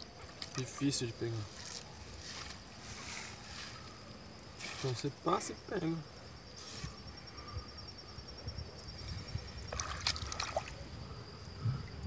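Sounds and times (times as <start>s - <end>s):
small water splashes: 0.0s - 3.3s, 4.5s - 5.1s, 9.2s - 10.9s
water sloshing and trickling: 0.0s - 5.7s, 8.9s - 12.0s.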